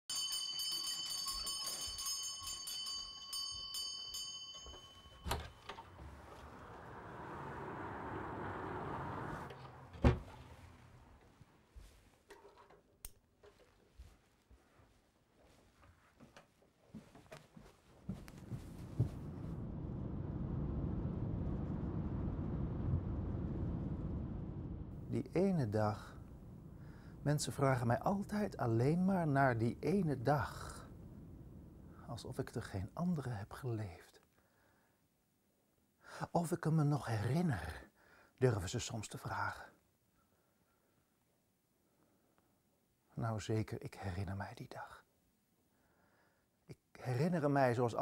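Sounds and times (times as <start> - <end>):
bell-like chimes: 0.1 - 6.0
car rumble inside cabin: 6.1 - 11.2
soft footsteps: 9.4 - 19.6.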